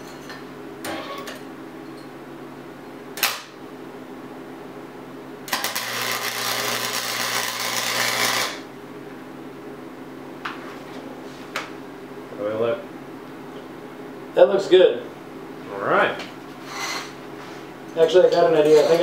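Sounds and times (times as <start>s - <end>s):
welder arc crackling: 5.5s - 8.7s.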